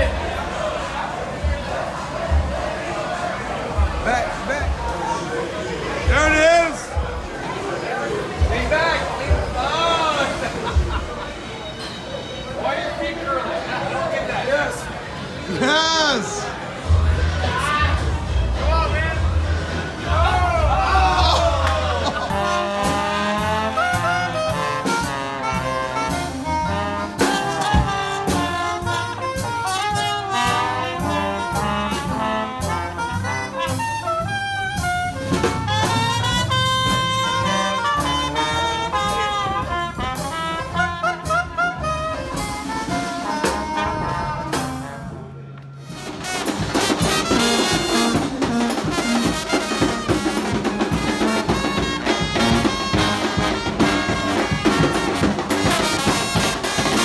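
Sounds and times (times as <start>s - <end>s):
jazz on trumpet and trombone: 22.0s - 57.0s.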